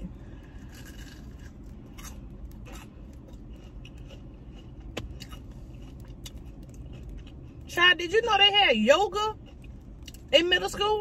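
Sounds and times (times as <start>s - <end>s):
crunchy food chewing: 0.4s - 7.7s.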